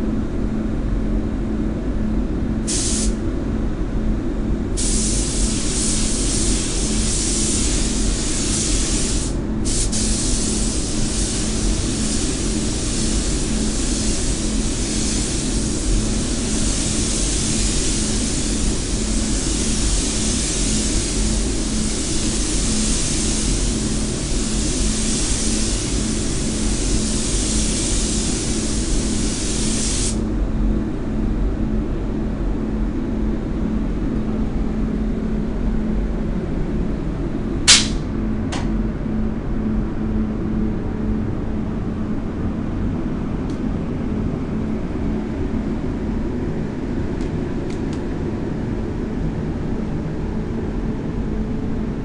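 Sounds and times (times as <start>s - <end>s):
steady low hum: 0.0s - 52.0s
paint spray gun hissing: 2.7s - 3.2s, 4.8s - 30.3s, 37.7s - 38.0s.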